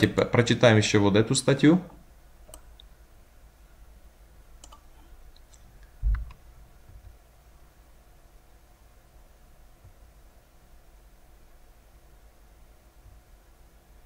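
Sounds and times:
computer mouse clicks: 0:02.5 - 0:02.9, 0:04.6 - 0:06.4
scroll wheel ticks: 0:02.5 - 0:02.9, 0:04.6 - 0:05.6.

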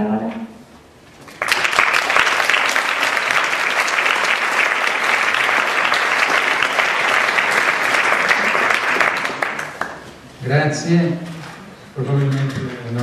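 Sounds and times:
audience clapping: 0:01.2 - 0:10.3.

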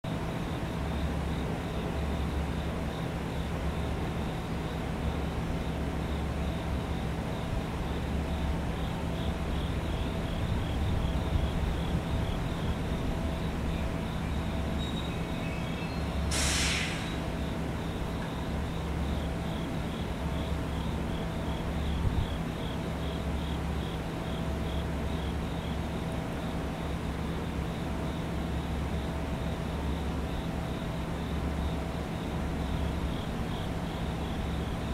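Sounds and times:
train equipment humming: 0:00.1 - 0:34.9
air brake hiss: 0:16.2 - 0:17.4.

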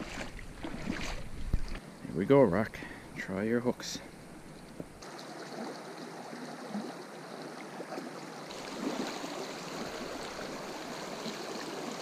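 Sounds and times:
brook rushing over stones: 0:04.8 - 0:12.0.

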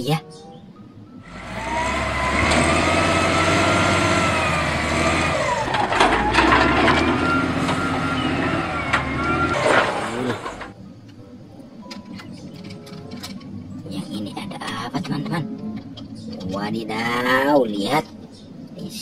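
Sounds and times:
diesel engine running: 0:01.2 - 0:10.8
hydraulic whine: 0:01.2 - 0:10.8
metal knocks and clanks: 0:04.8 - 0:10.7.

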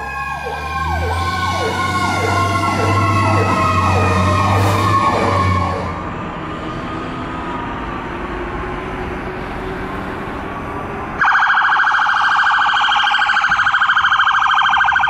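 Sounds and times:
electronic siren yelp: 0:00.0 - 0:06.0, 0:11.2 - 0:15.0
siren tone sliding down: 0:00.0 - 0:07.3, 0:11.2 - 0:15.0
street traffic: 0:00.0 - 0:15.0.

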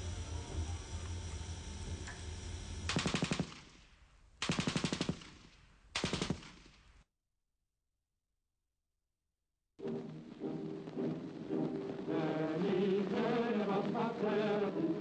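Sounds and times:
low music drone: 0:00.0 - 0:02.9
machine-gun fire bursts: 0:02.9 - 0:06.9.

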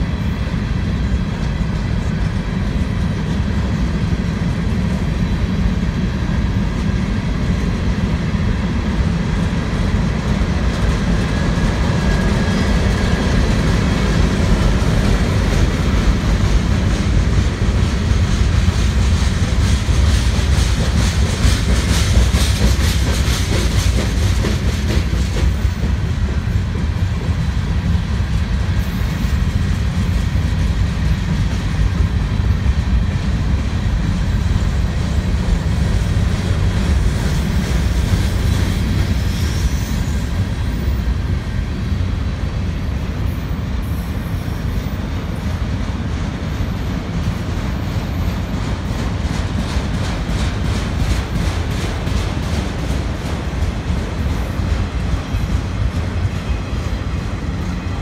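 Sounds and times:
train wheels rumbling on rails: 0:00.0 - 0:58.0.

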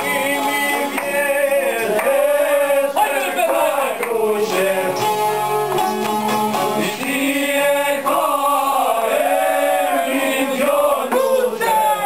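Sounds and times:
men singing folk song: 0:00.0 - 0:12.0
plucked lutes: 0:03.0 - 0:07.4.

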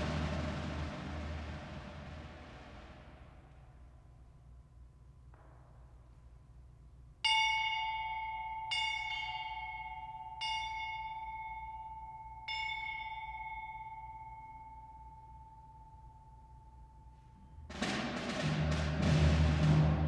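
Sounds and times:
brass bell struck with hammer: 0:07.2 - 0:14.5.

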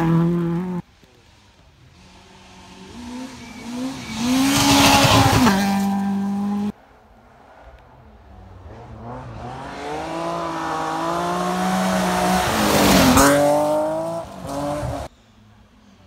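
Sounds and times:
rally car engine accelerating: 0:02.0 - 0:06.7.

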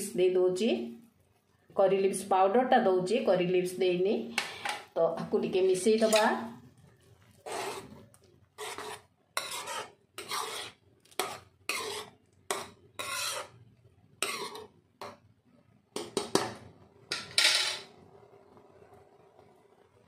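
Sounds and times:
metal spoon scraping paste: 0:07.3 - 0:13.6, 0:14.2 - 0:15.2.

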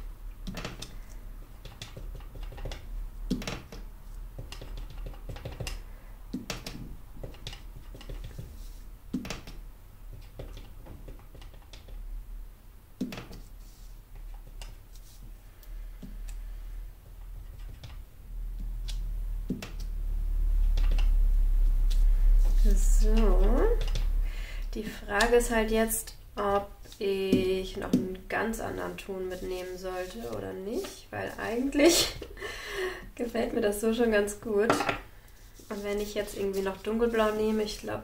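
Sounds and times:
low hum: 0:15.7 - 0:26.4.

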